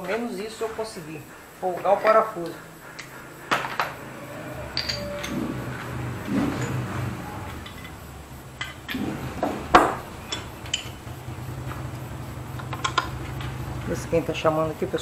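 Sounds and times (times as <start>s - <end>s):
steady low hum: 0.0s - 15.0s
steel hand tools clinking: 1.8s - 15.0s.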